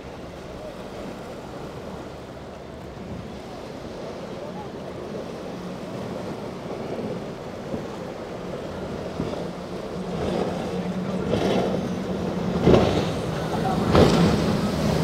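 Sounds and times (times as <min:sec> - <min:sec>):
motorboat engine humming: 0:00.0 - 0:15.0
waves: 0:00.0 - 0:15.0
wind: 0:00.0 - 0:15.0.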